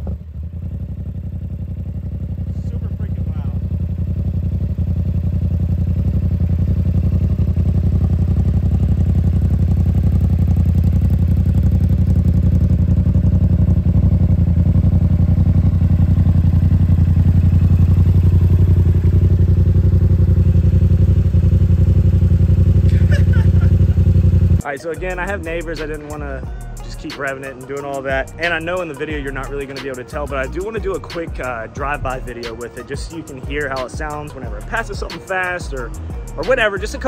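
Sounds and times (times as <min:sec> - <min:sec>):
motorcycle engine idling: 0:00.0 - 0:37.0.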